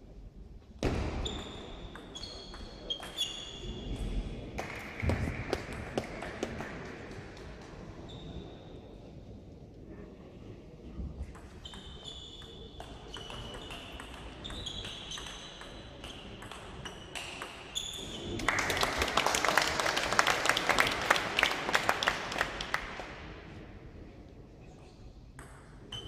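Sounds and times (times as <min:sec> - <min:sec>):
crowd applause: 0:18.3 - 0:23.1.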